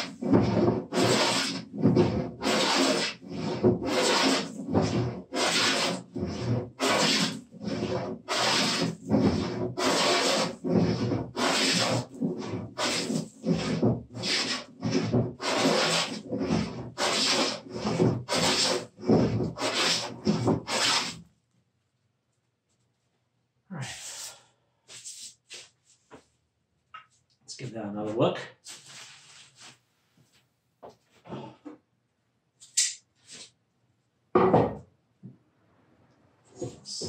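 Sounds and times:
hand plane rasping strokes on wood: 0.0 - 21.2.

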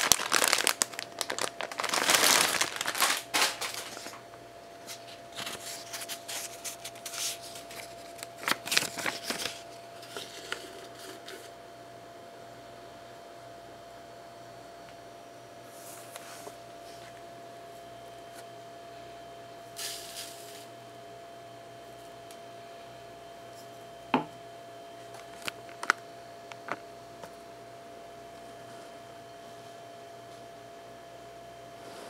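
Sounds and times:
coffee grounds pouring into filter: 0.0 - 3.1, 19.8 - 20.7
faint steady hum tone: 0.0 - 32.0.

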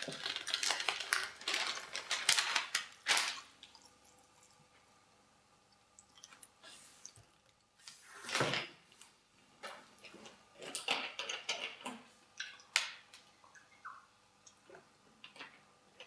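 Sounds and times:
plastic bottle crackling: 0.0 - 3.5.

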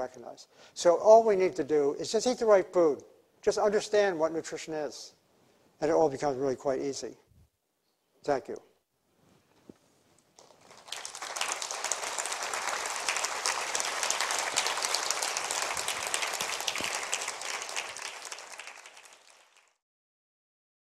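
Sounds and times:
audience applauding: 10.4 - 19.8.

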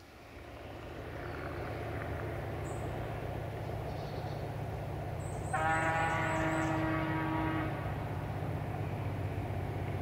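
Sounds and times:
locomotive horn blast: 5.5 - 8.2.

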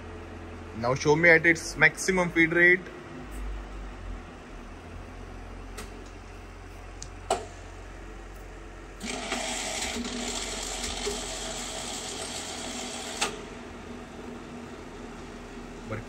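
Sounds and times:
low machine hum: 0.0 - 16.0
machine feed gearing whir: 8.8 - 16.0.

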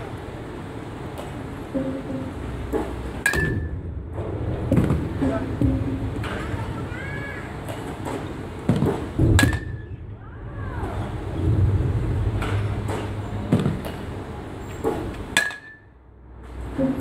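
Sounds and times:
baseball bat hitting ball: 1.2 - 3.8, 7.6 - 9.9, 14.8 - 15.9.

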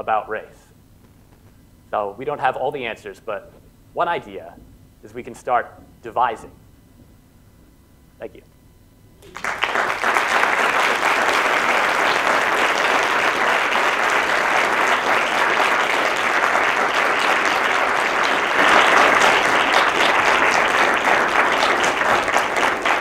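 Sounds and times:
audience applause: 9.2 - 23.0.

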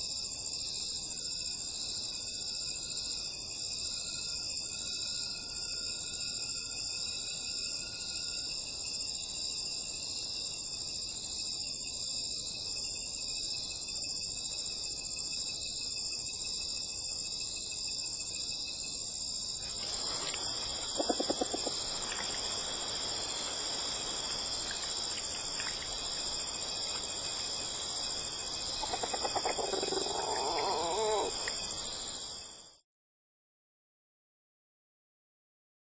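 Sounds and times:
crickets and insects trilling: 0.0 - 32.8
rustling through grass: 19.6 - 28.4.

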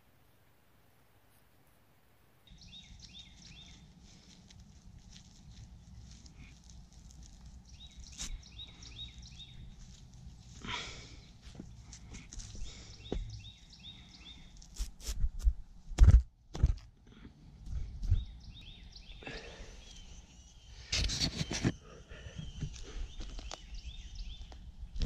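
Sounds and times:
rustling scrape: 3.1 - 10.6, 20.8 - 21.8
heavy thumps: 11.5 - 13.4.

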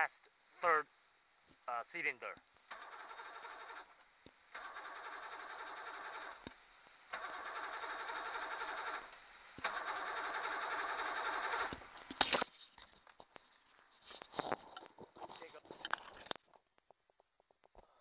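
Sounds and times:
electric starter cranking outboard engine: 2.7 - 3.9, 4.6 - 6.5, 7.1 - 11.8.

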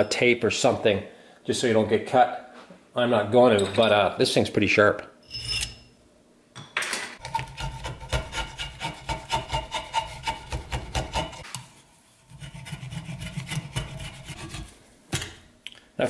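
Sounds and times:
hand tool shaving wood: 7.3 - 11.5.

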